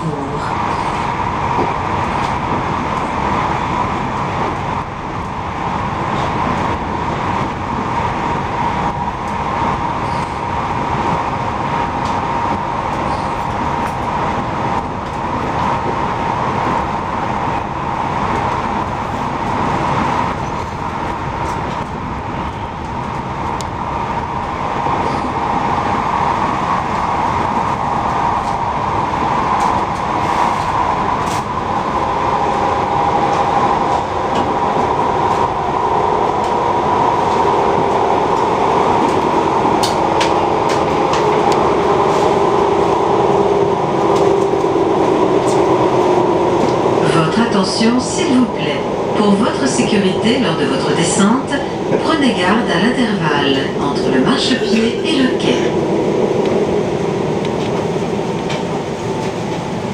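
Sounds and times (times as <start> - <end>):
train running rumble: 0.0 - 59.9.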